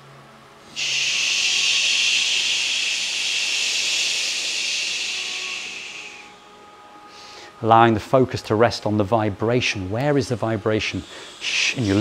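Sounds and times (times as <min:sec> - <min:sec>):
shh breath through teeth: 0:00.7 - 0:07.6, 0:11.0 - 0:12.0.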